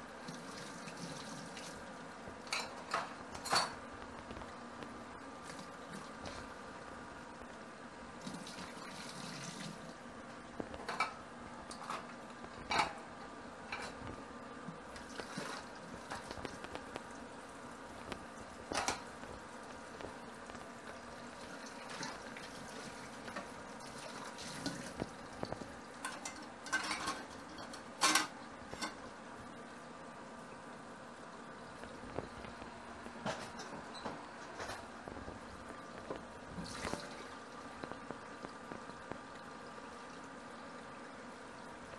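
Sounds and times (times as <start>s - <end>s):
steady background hum: 0.0s - 41.9s
metal utensils clinking in sink: 2.5s - 3.8s, 12.7s - 13.0s, 26.0s - 29.0s.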